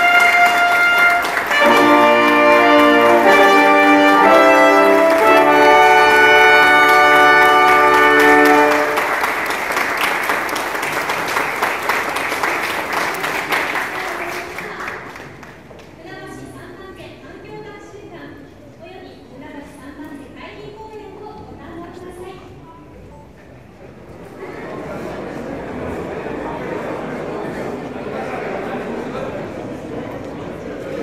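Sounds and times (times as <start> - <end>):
brass band playing fanfare: 0.0 - 10.5
applause: 0.0 - 16.0.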